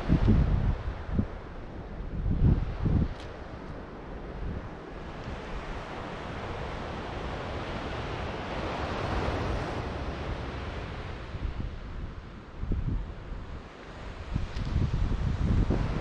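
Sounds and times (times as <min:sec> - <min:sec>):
ocean surf breaking: 0:00.0 - 0:16.0
wind on microphone: 0:00.0 - 0:16.0.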